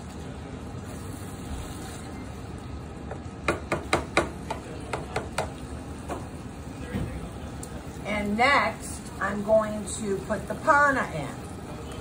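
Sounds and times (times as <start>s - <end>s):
faint sizzle: 0.0s - 12.0s
spatula knocking on pan: 3.4s - 6.2s.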